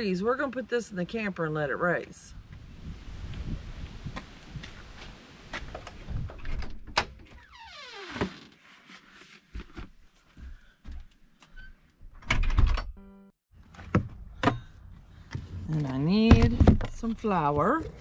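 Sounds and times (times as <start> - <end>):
falling creak: 6.4 - 8.9
footsteps on trailer floor: 9.5 - 11.6.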